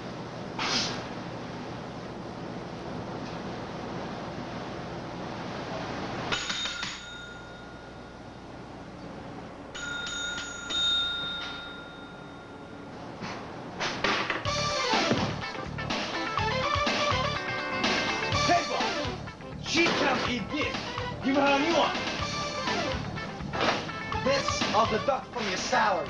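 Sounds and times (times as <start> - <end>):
service bell dinging: 6.3 - 8.6, 9.7 - 13.0.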